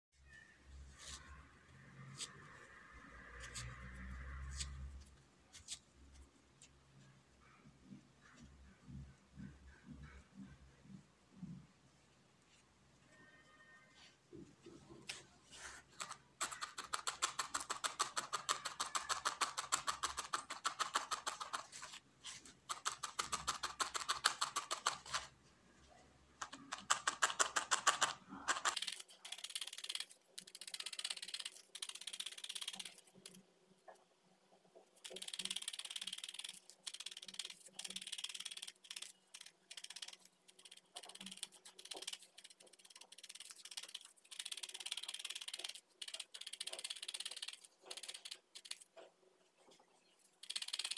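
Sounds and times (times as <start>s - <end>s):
felting needle poking into foam: 34.8s - 49.0s.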